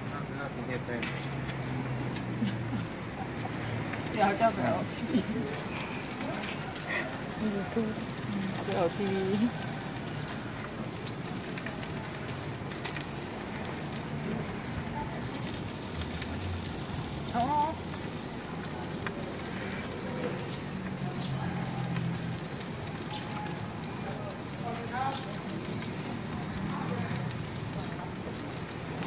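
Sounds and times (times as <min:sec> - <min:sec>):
sausages sizzling on grill: 0:00.0 - 0:29.0.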